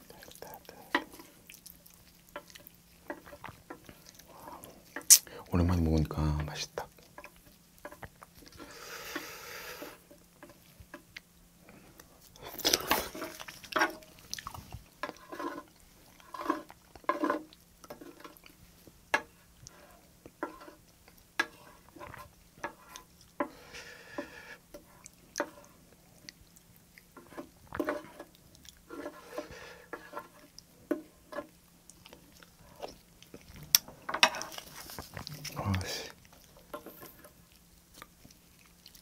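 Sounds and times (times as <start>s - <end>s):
chewing and mouth smacks: 0.0s - 5.3s, 12.0s - 15.2s, 25.0s - 28.9s, 31.5s - 39.0s
wooden spoon scraping a plate: 12.6s - 14.2s, 15.0s - 18.4s, 19.1s - 20.8s, 21.4s - 25.8s, 27.2s - 31.6s, 34.0s - 35.6s.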